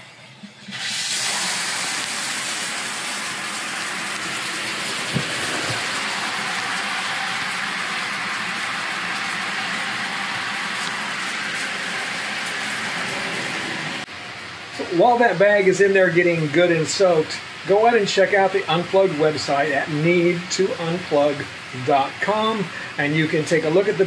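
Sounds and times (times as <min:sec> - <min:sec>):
water running into bathtub: 0:00.4 - 0:14.1.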